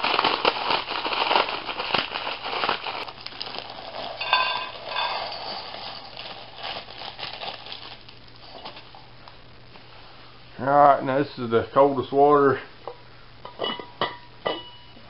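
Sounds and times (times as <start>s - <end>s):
dry noodles crunching in packet: 0.0s - 9.0s.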